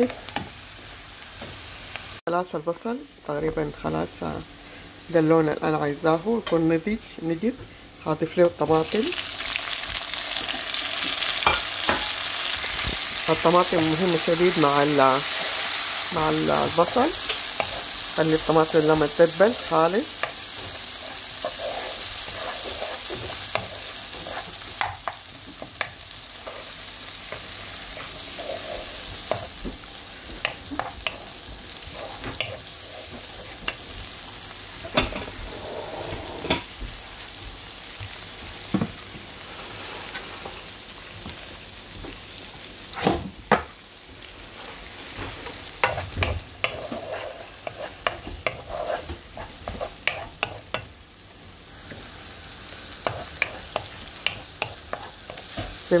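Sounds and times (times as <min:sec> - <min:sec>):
onion and tomato sizzling in oil: 0:00.0 - 0:56.0
wooden spoon scraping a pan: 0:13.5 - 0:29.6, 0:30.2 - 0:33.9, 0:44.5 - 0:50.9, 0:53.0 - 0:56.0.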